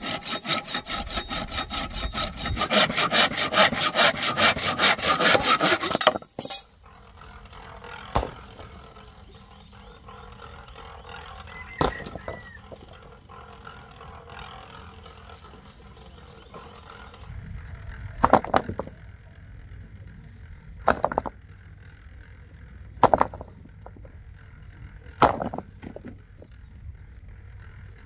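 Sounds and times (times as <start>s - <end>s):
low rumbling background: 6.5s - 28.0s.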